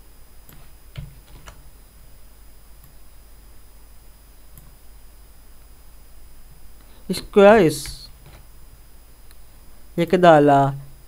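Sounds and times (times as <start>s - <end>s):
low hum and hiss: 0.0s - 11.0s
mouse and keyboard clicks: 0.5s - 1.6s.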